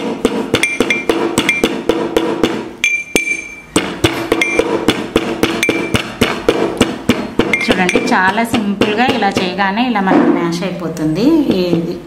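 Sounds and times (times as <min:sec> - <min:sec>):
metal rod tapping steel cup: 0:00.5 - 0:01.8, 0:02.8 - 0:03.6, 0:04.3 - 0:04.7, 0:05.4 - 0:06.1, 0:06.8 - 0:09.5
steel cup ringing: 0:02.8 - 0:03.7, 0:04.4 - 0:04.6.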